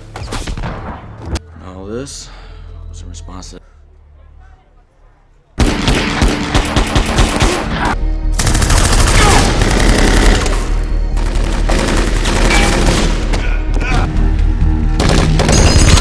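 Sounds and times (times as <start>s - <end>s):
rapid gunfire: 5.6s - 10.6s, 11.2s - 13.4s, 15.0s - 16.0s.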